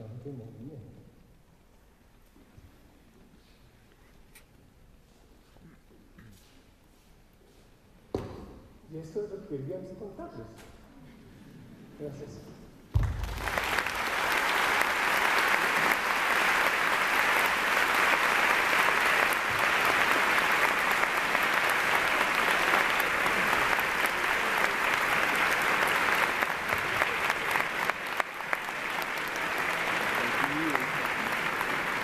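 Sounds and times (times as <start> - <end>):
large audience applauding: 13.0 - 32.0.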